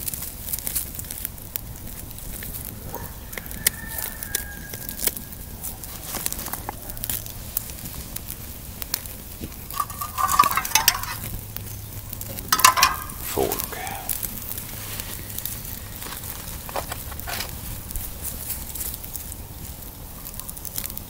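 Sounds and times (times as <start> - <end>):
wood fire crackling and popping: 0.0 - 21.0
metallic clatter: 9.7 - 11.4, 12.5 - 14.0.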